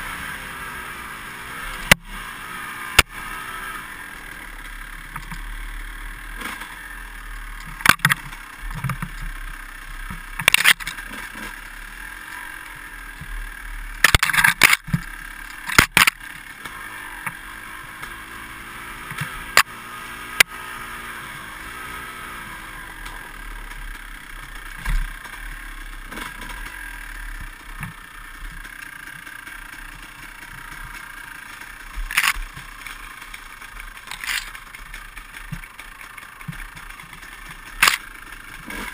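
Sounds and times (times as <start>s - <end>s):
dirt bike engine: 0.0s - 38.9s
bike knocking over bumps: 7.7s - 9.4s, 31.9s - 38.0s.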